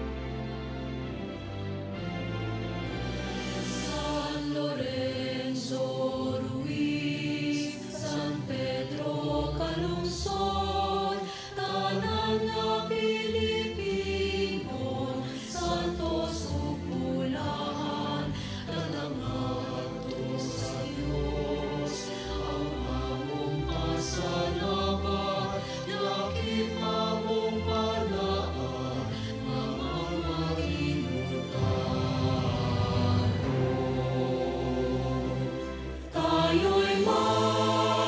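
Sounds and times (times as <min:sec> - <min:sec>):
choir singing a hymn: 0:02.8 - 0:38.0.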